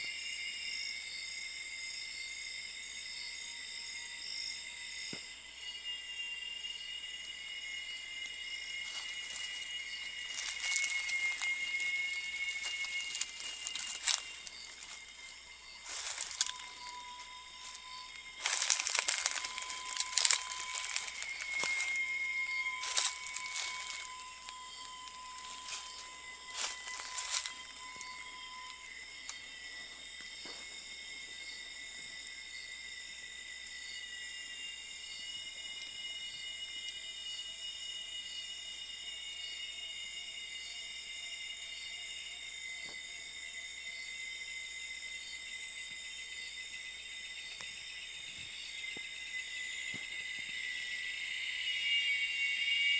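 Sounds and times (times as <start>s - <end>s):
insects droning: 0.0s - 52.9s
rustling: 8.8s - 24.2s.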